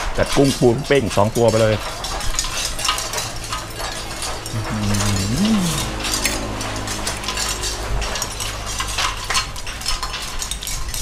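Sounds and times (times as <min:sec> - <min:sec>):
person humming mmm: 0:04.5 - 0:07.4.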